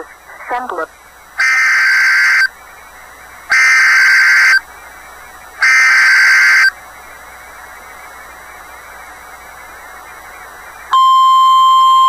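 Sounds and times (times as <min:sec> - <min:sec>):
buzzy digital data bursts: 0:01.4 - 0:02.5, 0:03.5 - 0:04.6, 0:05.6 - 0:06.8.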